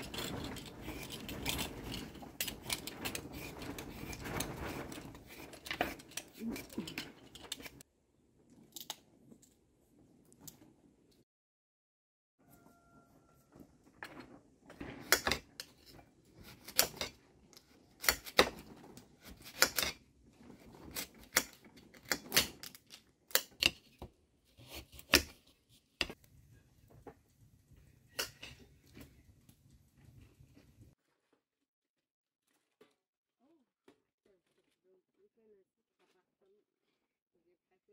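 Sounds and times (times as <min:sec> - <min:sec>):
knife cutting root vegetable: 0:15.0 - 0:20.0, 0:20.6 - 0:26.2.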